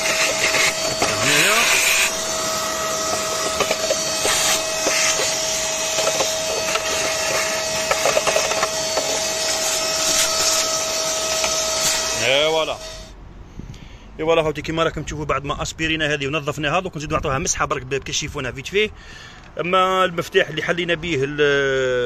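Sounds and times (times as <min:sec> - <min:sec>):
debris rattling up a hose: 0:00.0 - 0:10.8
vacuum cleaner whine: 0:00.0 - 0:13.2.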